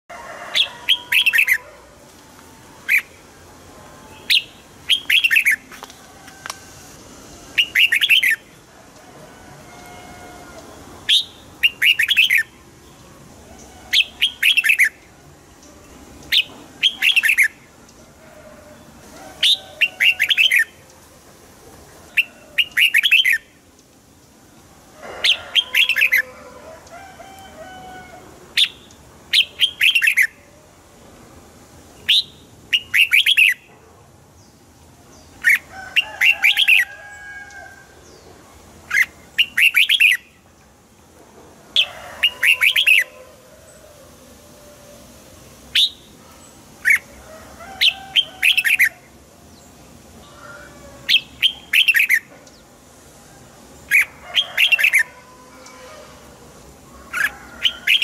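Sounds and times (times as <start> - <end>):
bird warbling song: 4.1 - 5.7, 7.6 - 8.5, 13.6 - 15.0, 16.2 - 17.6, 22.1 - 23.5, 51.1 - 52.7.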